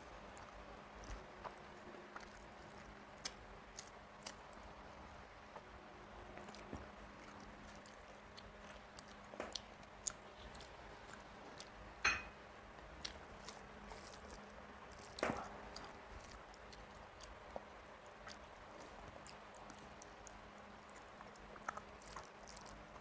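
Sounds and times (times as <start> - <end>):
person chewing with wet smacks: 0.0 - 12.0, 12.7 - 23.0
fingers squishing rice on plate: 12.8 - 23.0.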